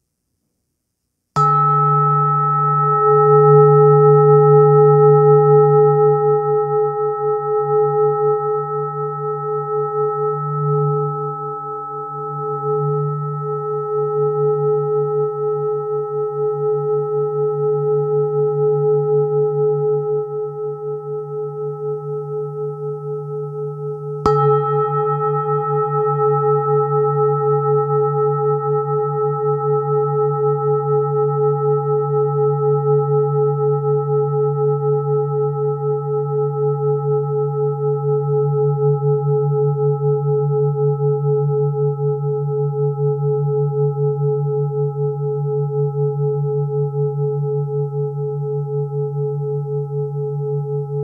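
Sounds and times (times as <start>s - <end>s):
singing bowl struck: 1.4s - 31.5s
singing bowl ringing: 1.4s - 51.0s.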